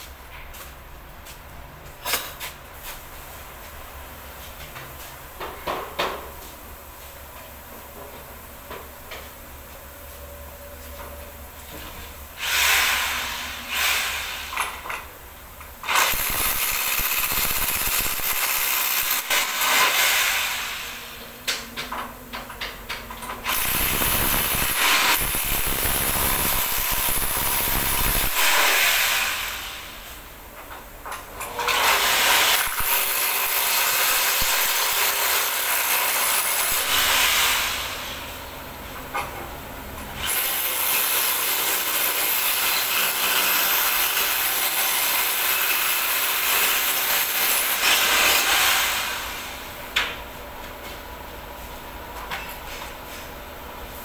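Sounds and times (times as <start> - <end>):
power drill running: 12.4 - 14.8, 15.8 - 21.2, 23.5 - 29.9, 31.7 - 38.4, 40.2 - 49.7.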